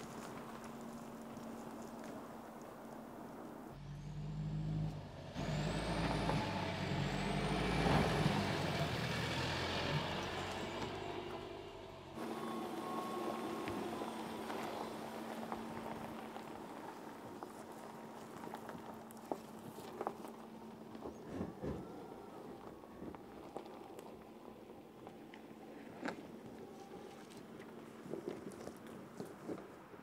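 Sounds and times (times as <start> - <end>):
tyres crunching over dirt: 0.0 - 3.8, 12.2 - 30.0
car drivetrain hum: 0.0 - 30.0.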